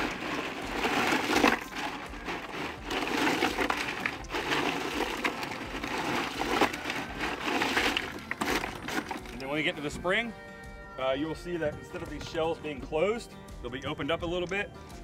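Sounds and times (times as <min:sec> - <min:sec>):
shells and ice clattering: 0:00.0 - 0:09.9.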